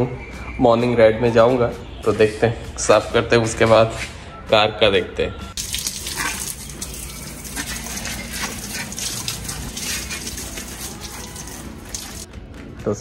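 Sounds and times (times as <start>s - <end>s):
garden hose water gushing: 5.6s - 12.3s.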